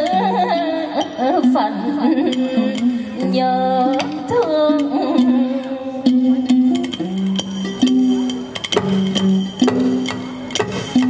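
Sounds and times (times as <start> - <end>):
plucked lute notes: 0.0 - 11.0
wavering sliding melody: 0.0 - 11.0
sharp percussion clicks: 2.2 - 11.0.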